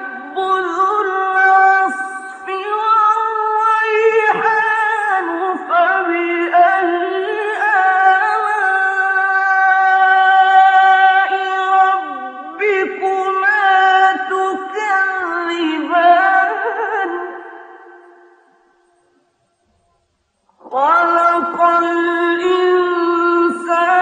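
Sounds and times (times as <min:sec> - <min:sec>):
person chanting: 0:00.0 - 0:18.4, 0:20.6 - 0:24.0.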